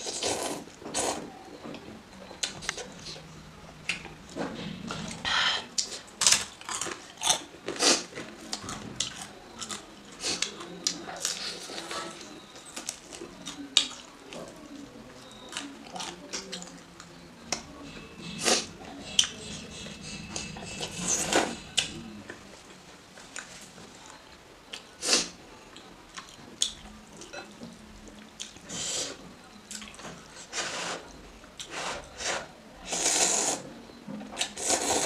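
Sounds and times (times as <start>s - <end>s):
slurping noodles: 0.0s - 1.3s, 31.8s - 33.6s, 34.6s - 35.0s
wet chewing: 5.8s - 17.6s.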